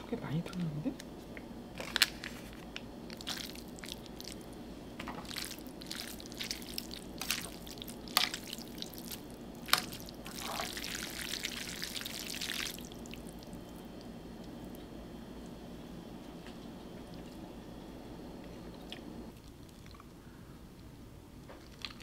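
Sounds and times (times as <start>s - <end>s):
wet squishing of noodles: 3.1s - 14.8s, 18.9s - 20.2s, 21.6s - 22.0s.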